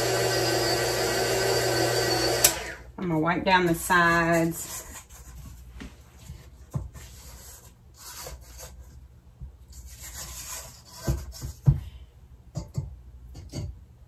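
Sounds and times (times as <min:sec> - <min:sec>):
spatula scraping metal bowl: 0:03.7 - 0:05.4.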